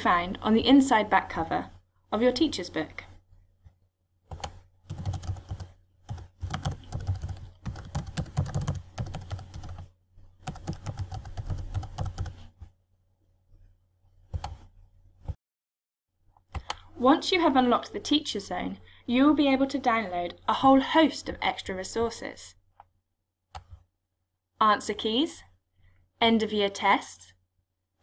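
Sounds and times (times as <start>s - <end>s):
computer keyboard typing: 4.3s - 12.5s, 14.4s - 14.7s.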